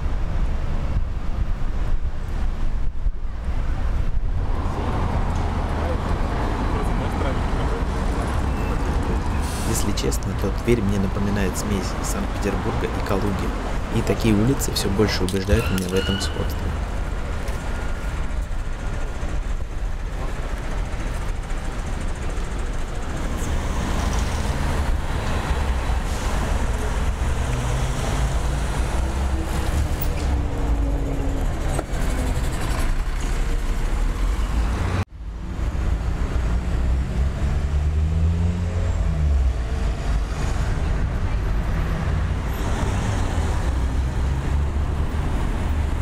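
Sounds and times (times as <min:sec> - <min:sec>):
vehicles driving past: 0:00.0 - 0:46.0
engines revving pulling away: 0:16.6 - 0:46.0.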